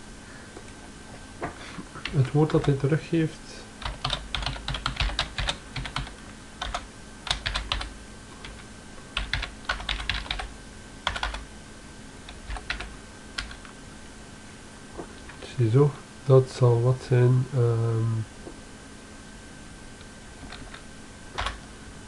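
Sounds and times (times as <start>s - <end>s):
typing on computer keyboard: 3.8s - 8.6s, 9.2s - 11.4s, 12.3s - 13.7s, 20.4s - 20.8s, 21.4s - 21.6s.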